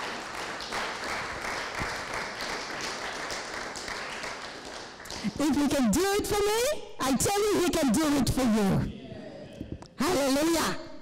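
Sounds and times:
congregation applauding: 0.0s - 5.9s.

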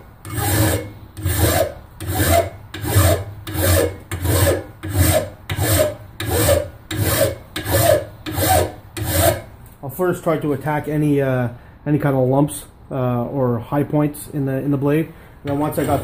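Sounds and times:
file rasping on steel: 0.2s - 9.5s, 15.5s - 16.0s.

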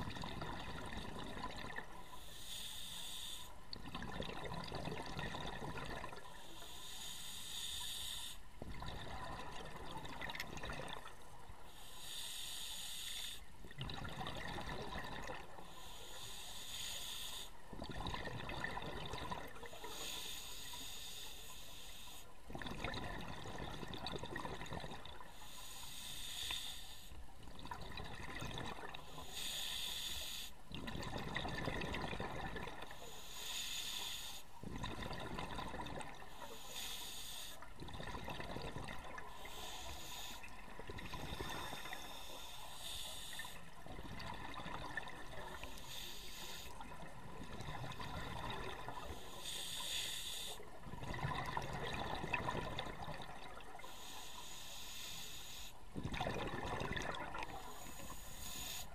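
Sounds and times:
exhaled air bubbling: 0.0s - 2.6s, 3.2s - 6.7s, 8.5s - 11.6s, 13.6s - 16.4s, 17.6s - 20.8s, 22.4s - 25.6s, 27.2s - 29.8s, 30.6s - 33.0s, 34.5s - 36.9s, 37.6s - 54.2s, 55.8s - 58.9s
regulator hiss on inhale: 2.0s - 3.6s, 6.2s - 8.6s, 11.6s - 13.5s, 15.5s - 17.7s, 19.5s - 22.4s, 25.2s - 27.3s, 28.9s - 30.7s, 32.8s - 34.7s, 36.1s - 37.7s, 39.2s - 43.8s, 45.0s - 47.1s, 48.4s - 50.8s, 53.7s - 56.0s, 57.4s - 58.9s.

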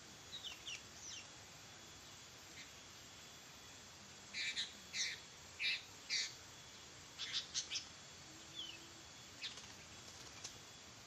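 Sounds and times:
bird chirping calls: 0.3s - 1.4s, 4.3s - 10.6s.

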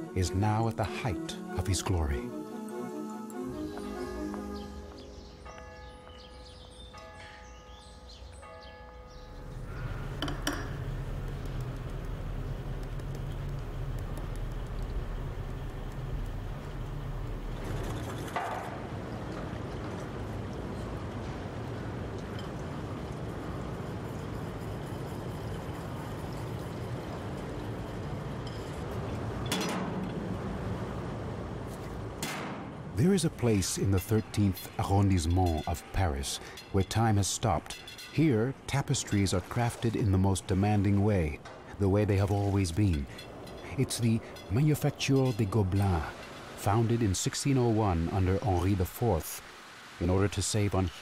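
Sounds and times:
church bell ringing: 5.0s - 10.2s
steady low hum: 9.3s - 18.2s
workshop hum and bustle: 9.4s - 47.9s.

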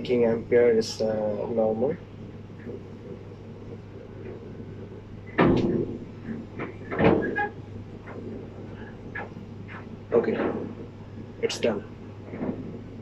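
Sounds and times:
steady low hum: 0.0s - 13.0s
knocks: 5.3s - 8.2s.

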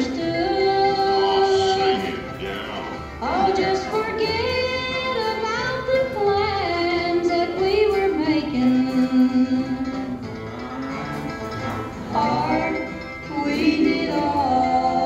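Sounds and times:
band accompaniment: 0.0s - 15.0s
woman singing slow melody: 3.2s - 10.0s.

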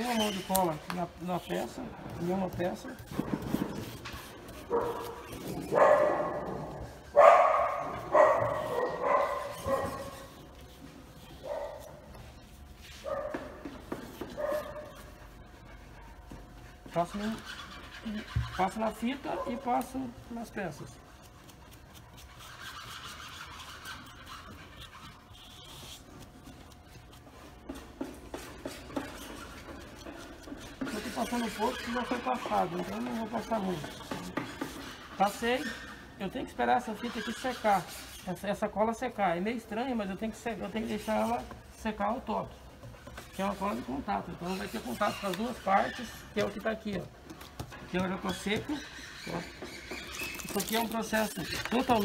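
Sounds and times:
paintbrush rubbing on wood: 0.0s - 52.0s
dog barking: 4.7s - 10.3s, 11.4s - 11.9s, 13.0s - 13.5s, 14.4s - 15.0s, 19.3s - 19.8s.

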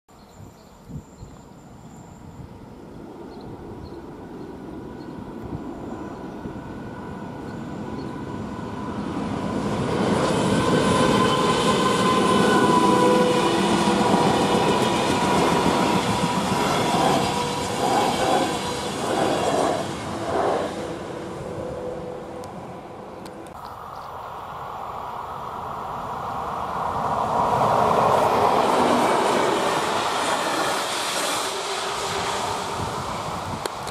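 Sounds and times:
train rumble: 2.2s - 24.0s, 25.2s - 33.9s
wheels squealing on rails: 5.9s - 22.7s, 26.8s - 33.8s.

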